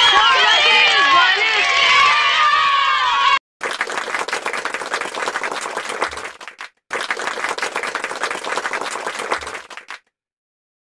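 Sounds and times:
crowd applause: 3.6 - 10.0.

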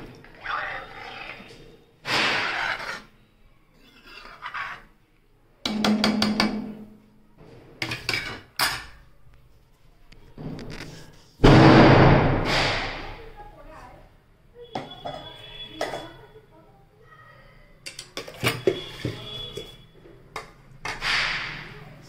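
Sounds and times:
spoon scraping metal pan: 0.0 - 5.0
spoon knocking metal pan: 5.6 - 6.9.

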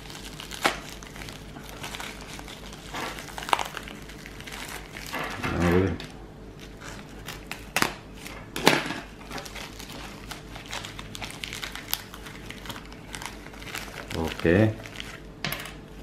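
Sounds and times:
plastic bag crinkling: 0.0 - 5.9, 6.6 - 8.3, 9.1 - 15.4.

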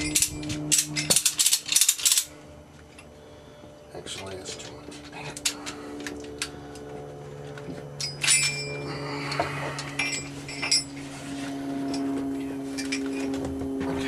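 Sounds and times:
metal buckle clinking and clicking: 0.0 - 2.3, 8.0 - 8.8
steady low hum: 0.0 - 14.0.

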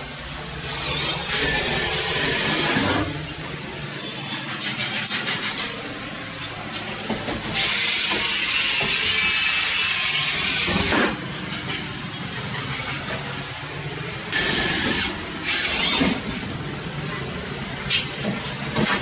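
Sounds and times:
electric drill running: 0.7 - 3.1, 7.6 - 10.9, 14.3 - 16.3.

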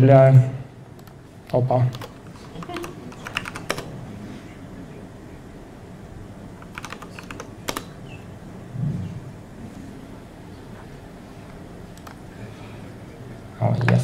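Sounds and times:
laptop keyboard typing: 1.9 - 3.9, 6.6 - 8.0, 11.9 - 12.2.

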